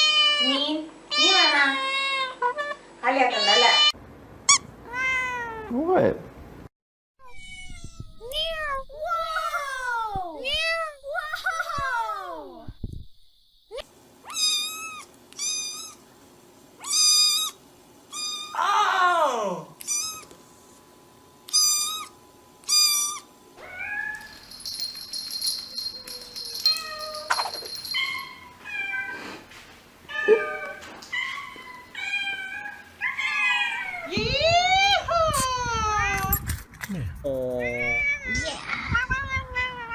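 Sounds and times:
cats calling: 13.7s - 16.0s, 16.8s - 18.7s, 19.8s - 20.4s, 21.5s - 29.3s, 30.1s - 34.2s
kitten meowing: 14.3s - 16.0s, 16.8s - 18.6s, 19.8s - 20.3s, 21.5s - 24.2s.

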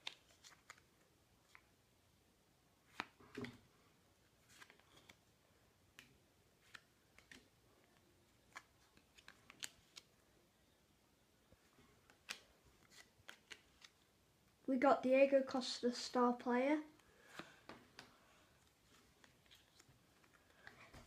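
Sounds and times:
trading cards clicking and snapping: 8.5s - 10.1s, 12.1s - 14.0s.

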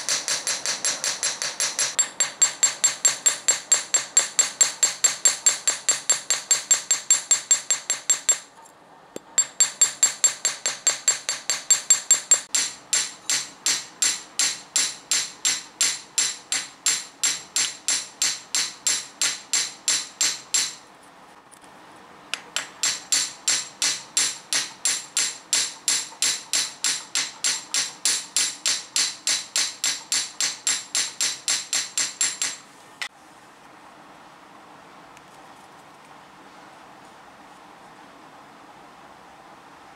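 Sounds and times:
hammer blows on steel anvil: 0.0s - 8.5s.

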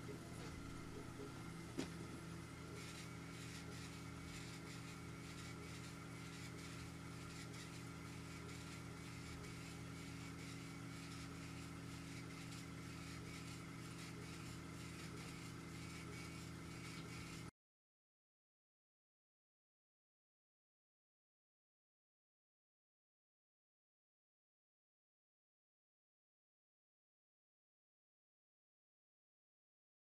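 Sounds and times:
low machine hum: 0.0s - 17.5s.

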